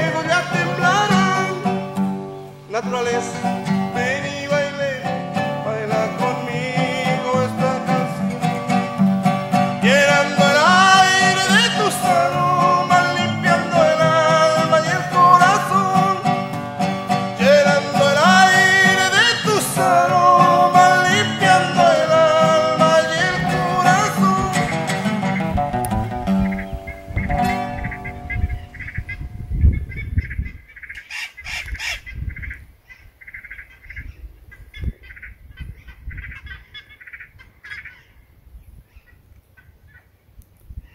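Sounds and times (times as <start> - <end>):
two acoustic guitars playing: 0.0 - 29.6.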